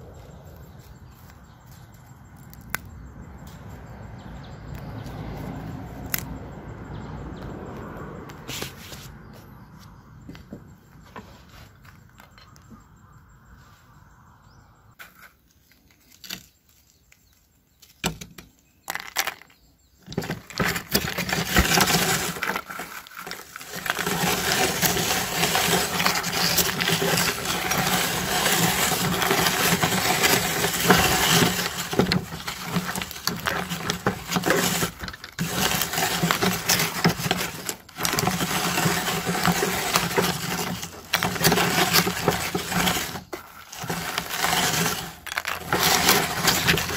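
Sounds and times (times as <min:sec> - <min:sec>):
meat grinder crunching corn snacks: 0:20.1 - 0:46.9.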